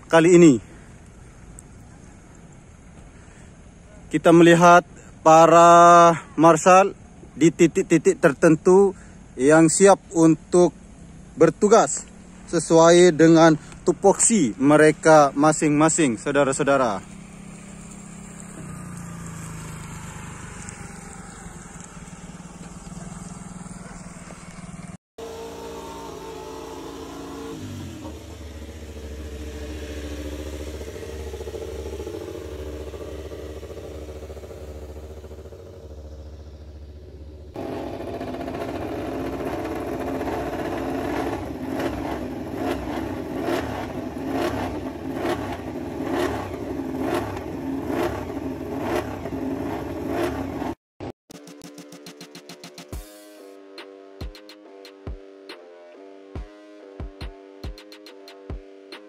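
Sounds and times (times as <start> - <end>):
motorcycle engine idling: 8.7 - 50.7
motorcycle engine revving: 14.8 - 50.8.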